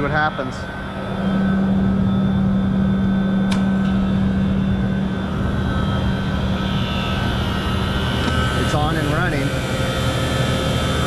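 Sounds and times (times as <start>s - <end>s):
refrigeration unit humming: 0.0s - 11.0s
sharp click: 3.4s - 3.7s.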